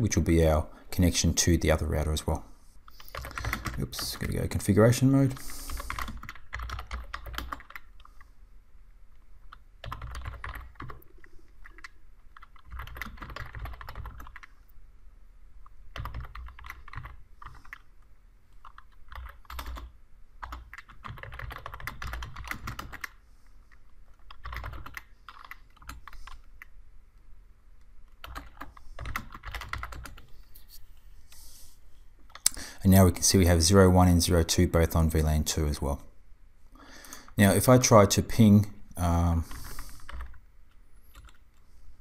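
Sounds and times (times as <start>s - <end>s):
typing on computer keyboard: 2.9s - 4.3s, 5.4s - 8.2s, 9.4s - 14.6s, 15.9s - 17.9s, 18.6s - 23.2s, 24.1s - 26.7s, 28.1s - 30.3s, 39.5s - 40.4s, 41.1s - 41.4s.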